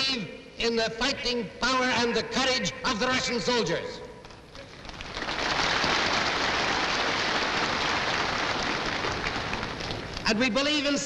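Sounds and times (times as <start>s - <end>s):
large crowd applauding: 4.5s - 10.4s.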